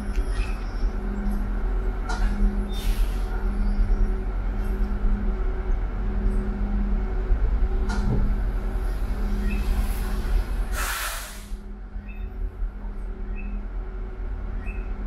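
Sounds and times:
click: 0:07.9 - 0:08.2
short burst of hissing: 0:10.7 - 0:11.6.

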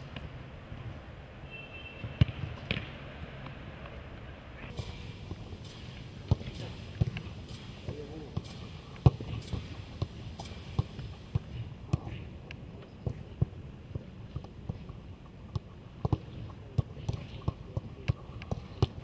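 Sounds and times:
footballs being kicked: 0:02.2 - 0:03.0, 0:04.7 - 0:12.2, 0:13.0 - 0:19.0.

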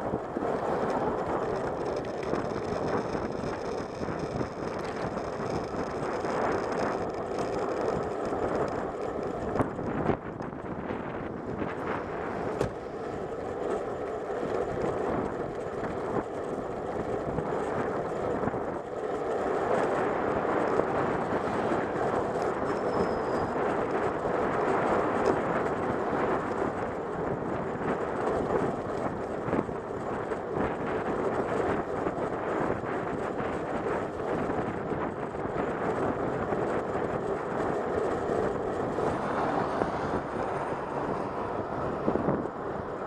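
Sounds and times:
wind on microphone: 0:00.0 - 0:13.3, 0:19.6 - 0:43.0
bicycle tyres on tarmac: 0:00.0 - 0:43.0.

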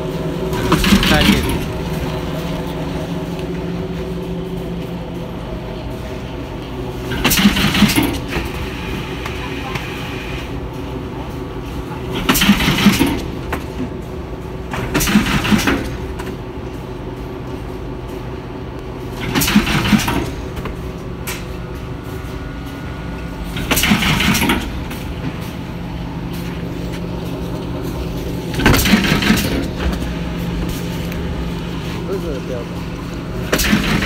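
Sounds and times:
loud mechanical bursts: 0:00.5 - 0:02.1, 0:07.1 - 0:09.2, 0:12.1 - 0:13.5, 0:14.7 - 0:16.2, 0:19.1 - 0:20.6, 0:23.4 - 0:25.6, 0:27.9 - 0:34.0
nailing machine humming: 0:23.2 - 0:25.4, 0:28.5 - 0:30.1.

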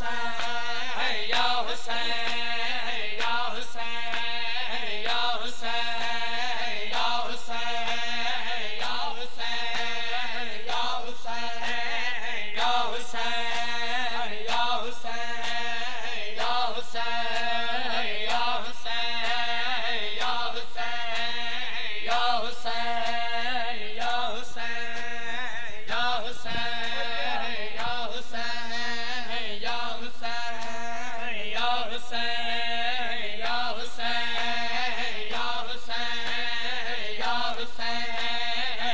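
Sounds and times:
man chanting a lament: 0:24.3 - 0:38.9.

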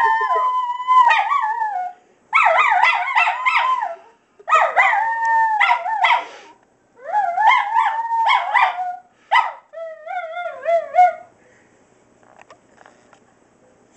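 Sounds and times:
dogs howling: 0:00.0 - 0:04.0, 0:07.0 - 0:09.1, 0:09.8 - 0:11.3
dogs yelping: 0:00.0 - 0:06.3, 0:07.0 - 0:11.3.

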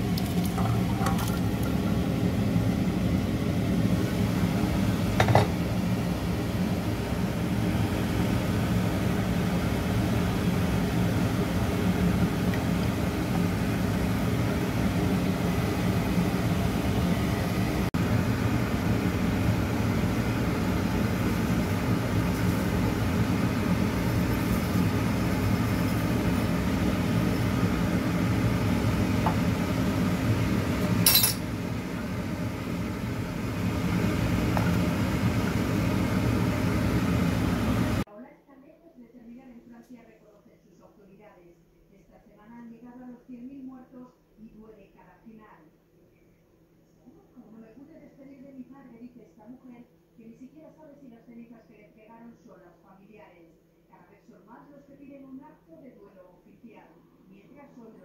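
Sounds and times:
soup boiling in a pot: 0:00.0 - 0:38.0
steady mechanical hum: 0:00.0 - 0:58.0.

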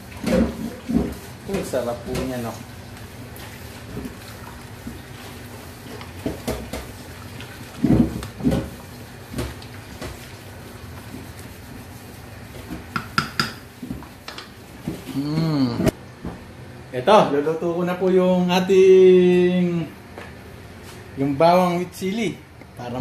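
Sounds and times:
sharp taps on pot: 0:12.9 - 0:13.6.

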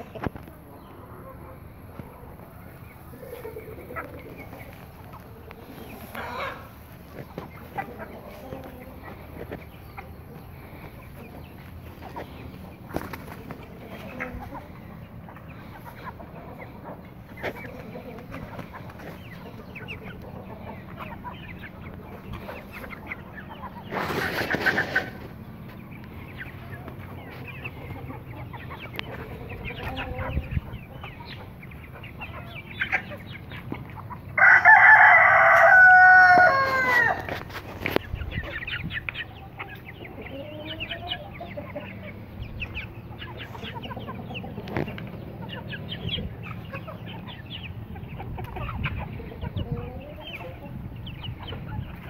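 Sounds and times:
chickens clucking: 0:00.0 - 0:52.0
rooster crowing: 0:34.4 - 0:37.3.

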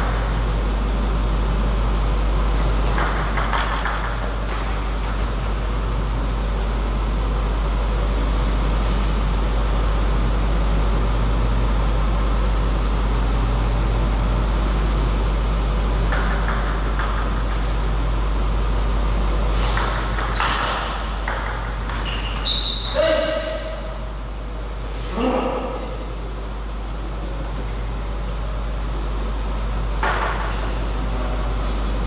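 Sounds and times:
indoor hall hum: 0:00.0 - 0:32.0
table tennis ball clicks: 0:02.8 - 0:06.2, 0:16.1 - 0:17.7.

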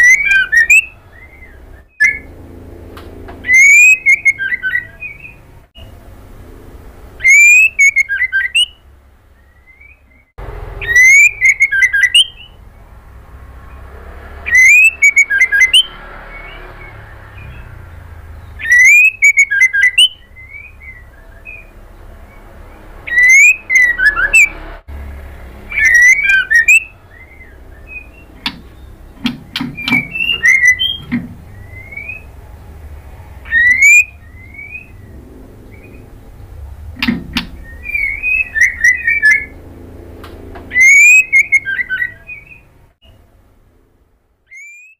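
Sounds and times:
bird singing whistled notes: 0:00.0 - 0:02.3, 0:03.4 - 0:05.5, 0:07.2 - 0:12.6, 0:14.4 - 0:24.6, 0:25.6 - 0:32.4, 0:33.4 - 0:39.6, 0:40.7 - 0:42.7, 0:44.5 - 0:44.9
bird sharp clicks: 0:28.4 - 0:31.3.

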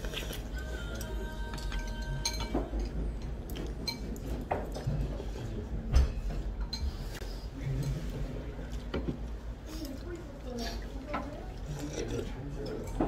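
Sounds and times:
quiet background music: 0:00.0 - 0:06.2
utensils clinking on ceramic bowl: 0:01.5 - 0:04.9.

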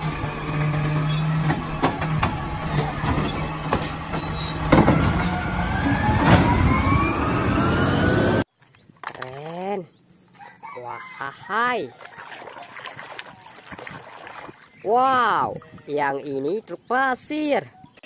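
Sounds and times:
garbage truck running: 0:00.0 - 0:08.4
rising hydraulic whine: 0:00.0 - 0:08.4
trash can knocks: 0:04.7 - 0:05.3.

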